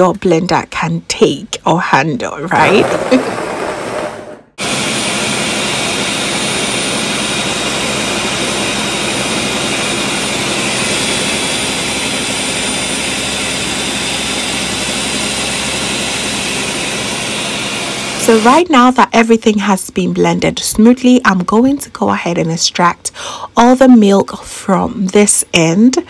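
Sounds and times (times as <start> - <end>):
blender grinding coconut: 2.5 - 18.6.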